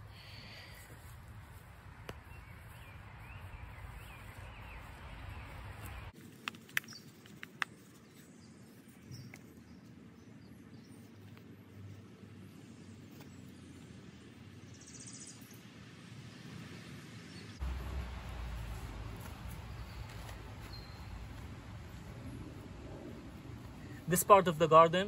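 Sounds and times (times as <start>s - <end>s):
birds chirping faintly: 0.0s - 6.2s, 6.8s - 25.0s
low background rumble: 17.6s - 24.2s.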